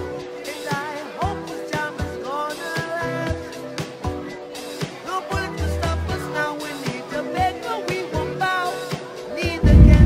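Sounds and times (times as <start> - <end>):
song with vocals and beat: 0.0 - 10.0.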